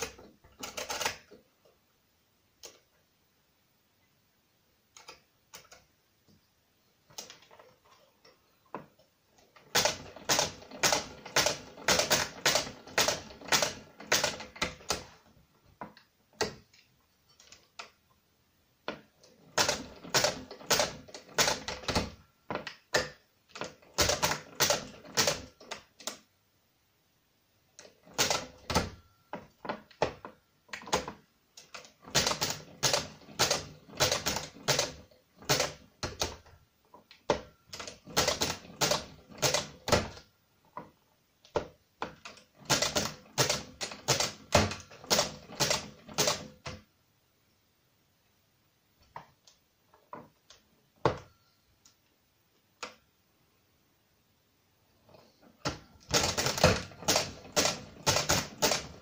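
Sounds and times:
mechanical calculator clicking: 0:00.0 - 0:01.4, 0:09.5 - 0:15.3, 0:18.9 - 0:26.2, 0:27.8 - 0:36.5, 0:37.1 - 0:40.3, 0:41.5 - 0:46.8, 0:55.6 - 0:59.0.

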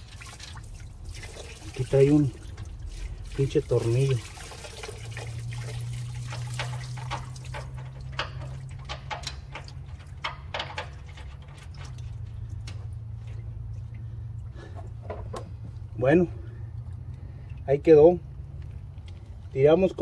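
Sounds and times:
fuel pouring and splashing into tub: 0:00.0 - 0:15.0
low hum: 0:00.0 - 0:19.5.

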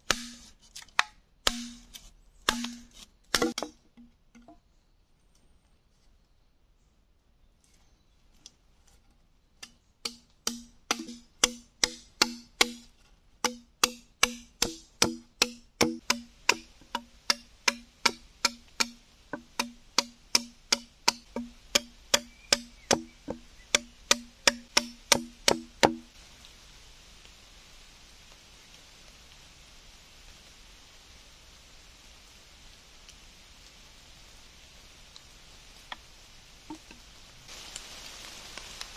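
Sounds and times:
machete chopping bamboo: 0:00.0 - 0:03.8, 0:09.6 - 0:26.1.

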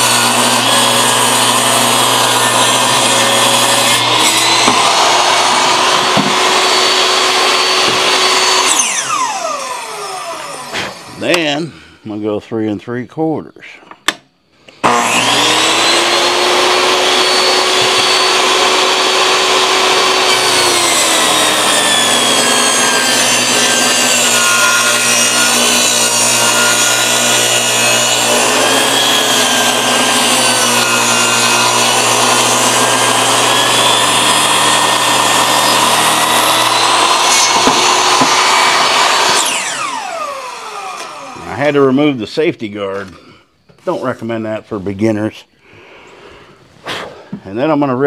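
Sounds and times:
saw motor winding down: 0:00.0 - 0:11.4, 0:14.8 - 0:41.9
table saw ripping a board: 0:00.0 - 0:11.5, 0:14.8 - 0:41.7.

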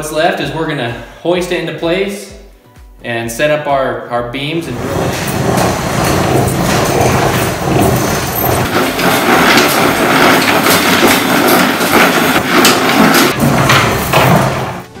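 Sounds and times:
chain hoist chain rattling: 0:04.7 - 0:14.9.

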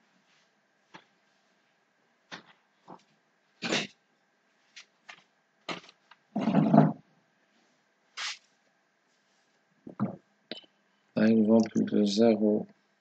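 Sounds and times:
faint steady whine: 0:00.0 - 0:13.0.

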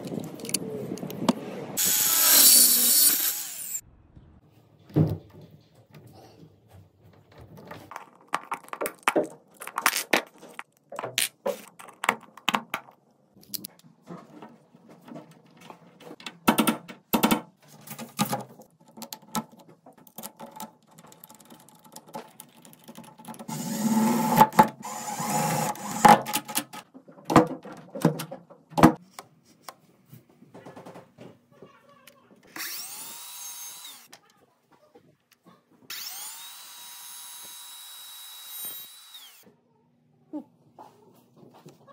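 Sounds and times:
power tool running: 0:01.8 - 0:03.8, 0:32.6 - 0:34.1, 0:35.9 - 0:39.4
motor whining: 0:35.9 - 0:39.4.

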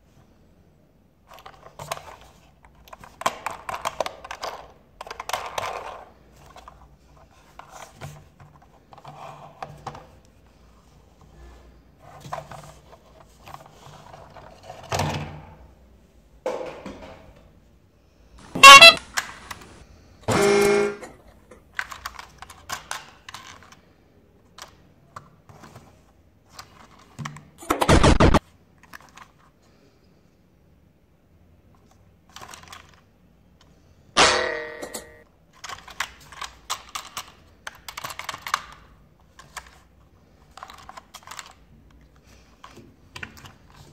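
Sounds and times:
electronic toy horn tones: 0:18.5 - 0:19.2, 0:20.3 - 0:21.1.

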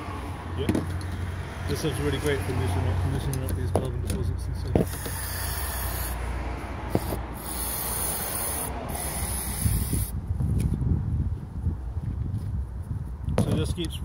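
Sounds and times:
aerosol spray hissing: 0:07.0 - 0:10.1.

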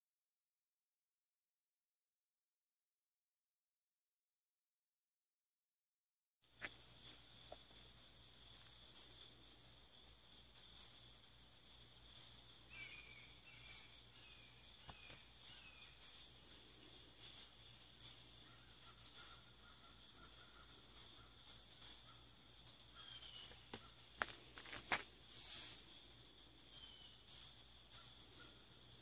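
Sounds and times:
insects trilling: 0:06.4 - 0:29.0.

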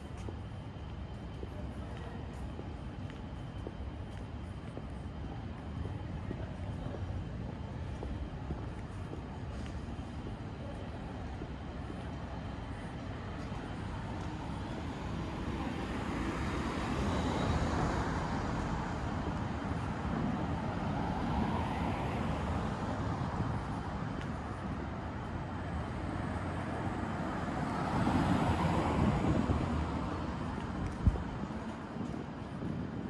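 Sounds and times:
urban hum: 0:00.0 - 0:33.0
cars passing: 0:13.9 - 0:33.0.

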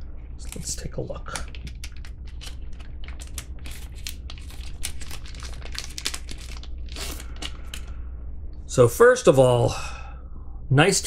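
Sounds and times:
packaging crinkling and rustling: 0:01.3 - 0:08.0.

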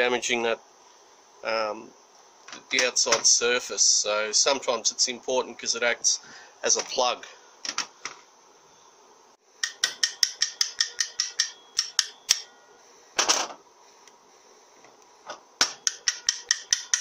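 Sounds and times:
screwdriver tapping on metal: 0:09.6 - 0:12.4, 0:15.7 - 0:17.0.

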